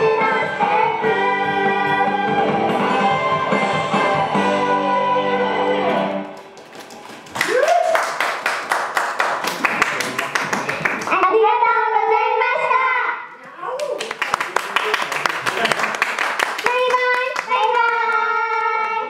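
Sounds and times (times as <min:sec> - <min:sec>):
pop song with singing: 0:00.0 - 0:06.2
audience clapping: 0:06.2 - 0:11.2, 0:13.8 - 0:19.0
girls speaking into microphones: 0:11.0 - 0:13.9, 0:16.6 - 0:19.0.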